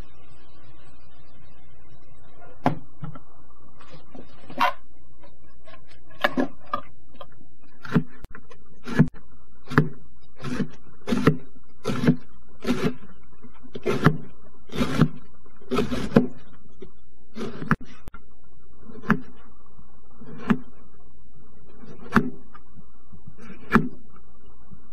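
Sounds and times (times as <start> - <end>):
knife slicing cabbage: 8.8 - 13.1, 13.8 - 16.4, 17.4 - 17.9.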